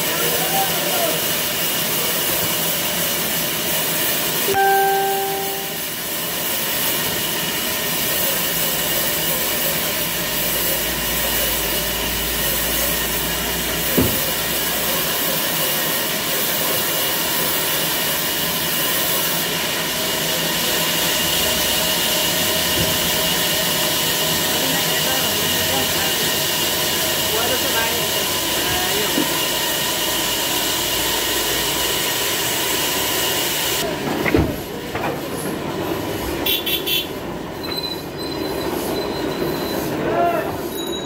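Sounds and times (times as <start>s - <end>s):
short pitched tone: 4.5s - 6.0s.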